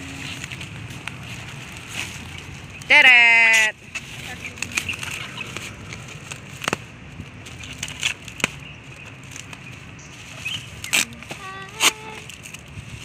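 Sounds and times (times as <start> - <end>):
bubble wrap crinkling: 0.0 - 2.9, 3.8 - 13.0
tape peeling: 3.5 - 13.0.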